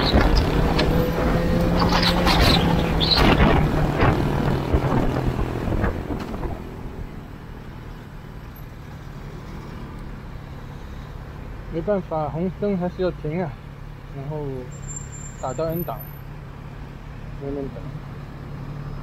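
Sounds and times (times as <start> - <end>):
wind rush: 0.0 - 7.1
motorcycle engine decelerating: 0.0 - 7.4.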